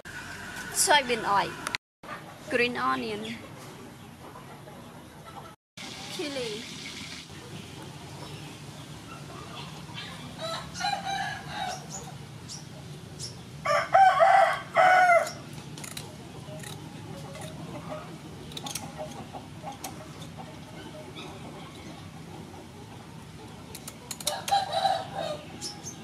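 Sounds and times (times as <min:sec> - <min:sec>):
rooster crowing: 0:10.4 - 0:11.9, 0:13.6 - 0:15.4, 0:24.2 - 0:25.5
kitchen scissors snipping: 0:15.2 - 0:17.6.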